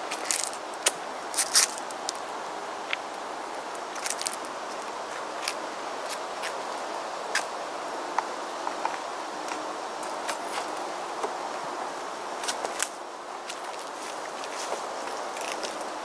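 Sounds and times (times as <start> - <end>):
footsteps on dry leaves and twigs: 0.0 - 2.3, 3.9 - 6.7, 12.3 - 15.9
steady background hiss: 0.0 - 16.0.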